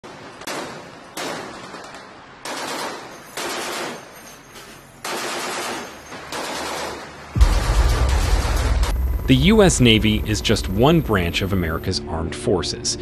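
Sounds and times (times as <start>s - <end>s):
machine-gun fire bursts: 0.5s - 4.0s, 5.0s - 10.2s.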